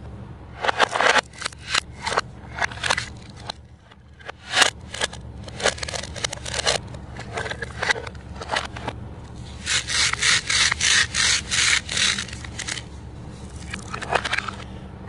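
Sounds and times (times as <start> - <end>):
plastic pieces clicking: 0.6 - 9.0, 9.6 - 12.9, 13.5 - 14.7
velcro tearing apart: 9.6 - 12.8.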